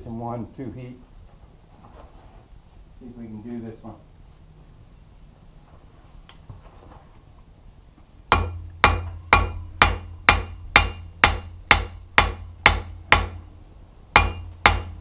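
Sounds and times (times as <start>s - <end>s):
hammer striking metal on anvil: 8.3s - 13.5s, 14.2s - 15.0s.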